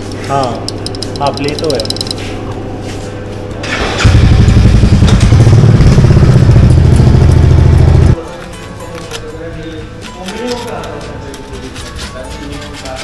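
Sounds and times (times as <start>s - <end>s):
motorcycle engine starting and running: 3.5s - 8.2s.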